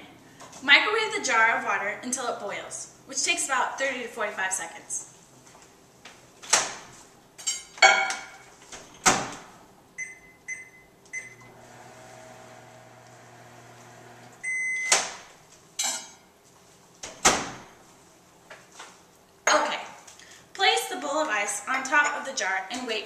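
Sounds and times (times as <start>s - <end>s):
keypad beeps: 10.0s - 11.5s, 14.4s - 15.0s
microwave finish beep: 10.0s - 11.6s, 14.3s - 15.0s
microwave humming: 10.0s - 15.1s.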